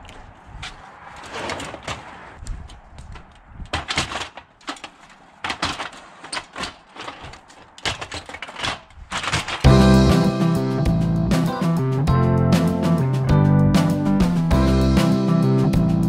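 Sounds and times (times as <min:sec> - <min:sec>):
strummed guitar music: 0:09.7 - 0:16.0.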